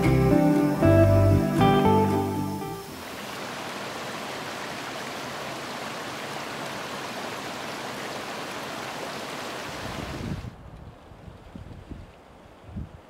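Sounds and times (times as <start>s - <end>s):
stream flowing over stones: 2.7s - 10.2s.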